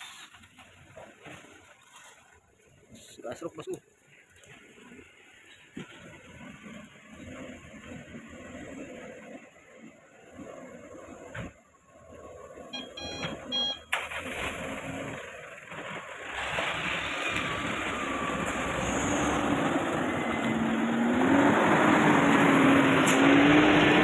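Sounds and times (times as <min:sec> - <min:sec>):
truck diesel engine labouring: 0:05.2 - 0:24.0.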